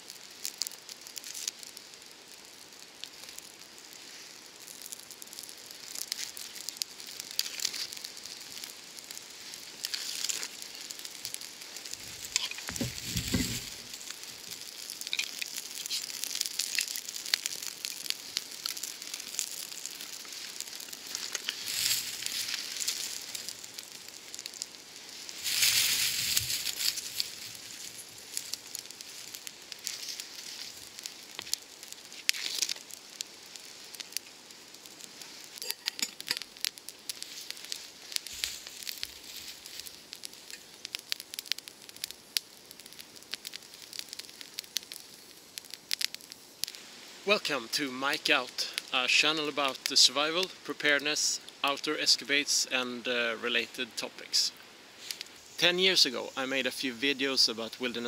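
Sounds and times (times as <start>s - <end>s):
small fire crackling and hissing: 0.0s - 58.0s
twigs rustling and knocking: 3.0s - 42.1s.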